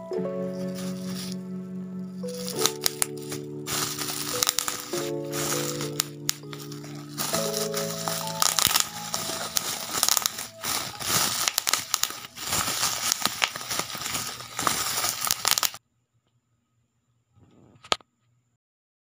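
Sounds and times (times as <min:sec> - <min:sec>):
bubble wrap crinkling and popping: 0:00.6 - 0:01.4, 0:02.2 - 0:15.8.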